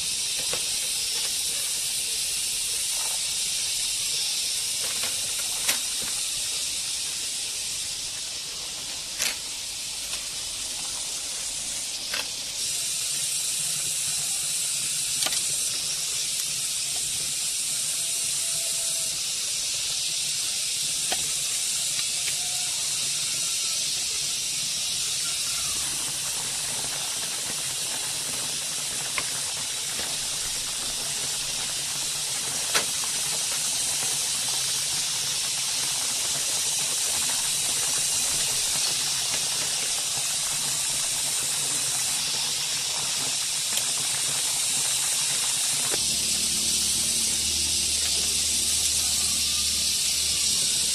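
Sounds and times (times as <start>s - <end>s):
steady high-pitched hiss: 0.0s - 50.9s
bamboo slats clicking: 32.6s - 33.1s.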